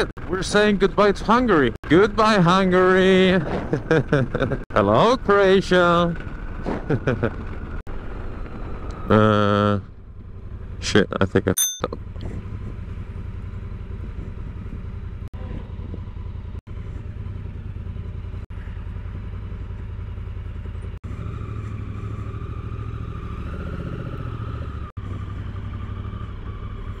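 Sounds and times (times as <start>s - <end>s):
motorcycle engine idling: 12.0s - 23.2s, 24.6s - 27.0s.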